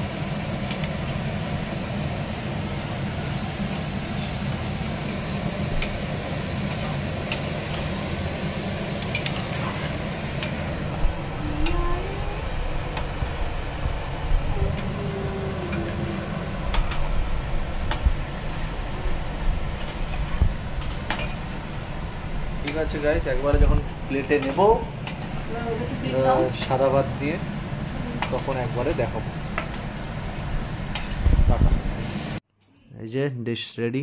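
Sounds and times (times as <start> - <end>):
steady low hum: 0.0 - 33.2
utensils clinking against dishes: 9.0 - 10.6, 19.8 - 21.6, 24.1 - 25.4.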